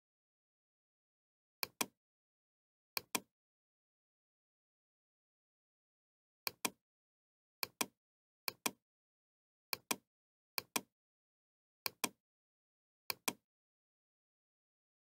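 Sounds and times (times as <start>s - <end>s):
computer mouse clicks: 1.6s - 2.0s, 3.0s - 3.3s, 6.5s - 6.8s, 7.6s - 8.8s, 9.7s - 10.0s, 10.6s - 10.9s, 11.9s - 12.2s, 13.1s - 13.4s.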